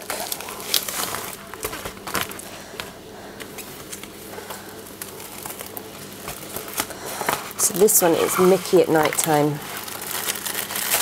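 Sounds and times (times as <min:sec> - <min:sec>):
bubble wrap rustling and crinkling: 0:00.0 - 0:11.0
bubble wrap clicks: 0:08.8 - 0:11.0.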